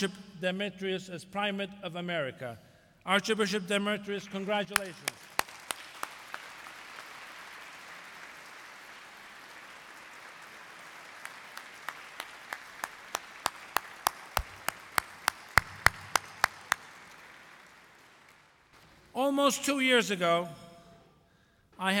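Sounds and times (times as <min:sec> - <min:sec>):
loud sharp claps close by: 0:04.4 - 0:19.0
audience applauding: 0:04.8 - 0:18.7.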